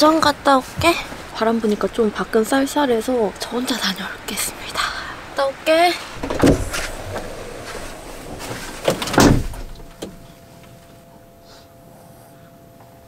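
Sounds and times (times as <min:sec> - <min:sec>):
faint steady hum: 0:00.0 - 0:13.0
van door shutting with a thud: 0:06.2 - 0:10.3.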